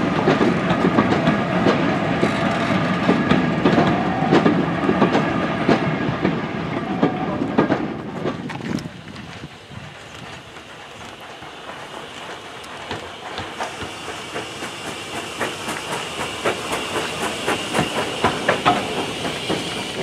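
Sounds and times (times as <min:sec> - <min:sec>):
clanking rods and wheels: 0:00.0 - 0:20.0
steam hiss: 0:08.9 - 0:20.0.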